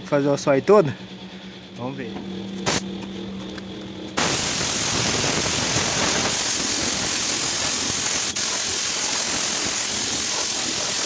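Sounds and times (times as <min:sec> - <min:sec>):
spray gun hissing: 0:04.2 - 0:11.0.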